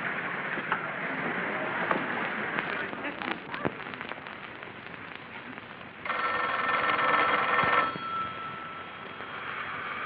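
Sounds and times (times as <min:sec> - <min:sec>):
telephone bell ringing: 0:06.1 - 0:09.6.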